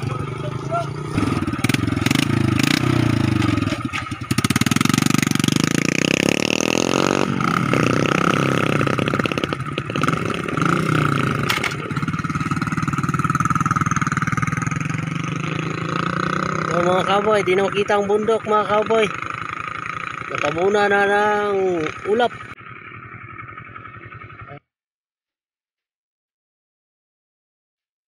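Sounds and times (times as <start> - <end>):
small motorcycle engines passing: 0.0 - 24.6.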